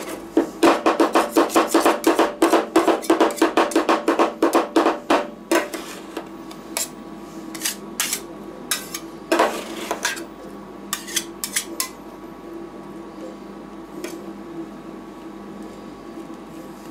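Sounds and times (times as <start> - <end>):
metal spatulas knocking on metal: 0.6 - 5.3
spatula scraping metal plate: 5.5 - 6.2, 7.5 - 10.2.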